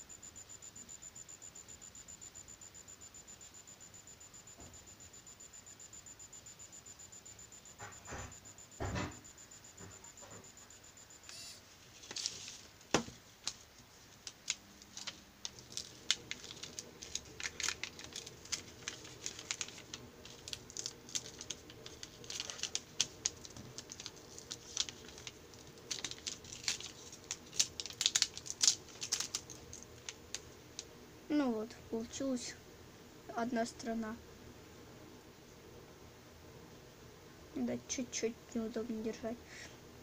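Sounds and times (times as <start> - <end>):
paper rustling and crinkling: 11.8 - 30.9.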